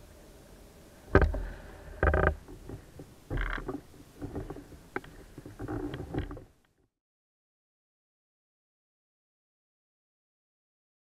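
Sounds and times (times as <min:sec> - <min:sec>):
oars creaking in oarlocks: 0:01.1 - 0:06.8.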